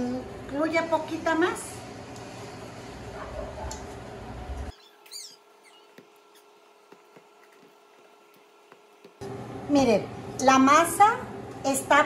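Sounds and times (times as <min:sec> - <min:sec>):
steady background hum: 0:00.0 - 0:12.0
brief high squeak: 0:04.7 - 0:06.5
hands kneading dough: 0:05.2 - 0:09.2.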